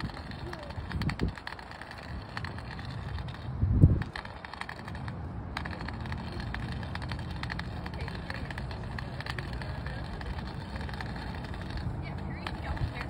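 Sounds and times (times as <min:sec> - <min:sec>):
cane tip clicking over pavers: 0:00.0 - 0:13.0
low background rumble: 0:00.0 - 0:13.0.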